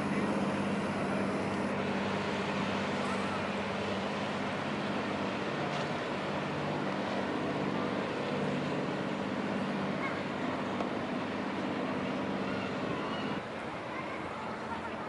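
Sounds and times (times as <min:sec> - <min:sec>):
boat engine droning: 0:00.0 - 0:15.0
churning prop wash: 0:00.0 - 0:15.0.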